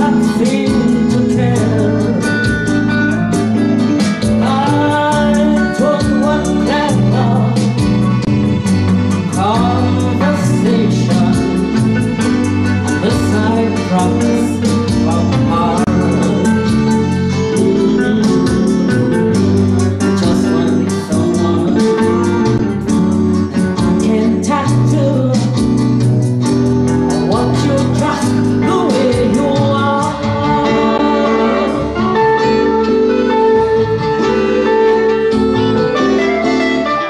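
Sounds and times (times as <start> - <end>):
electric guitar: 0.0 - 37.0
woman singing into a microphone: 27.3 - 32.3.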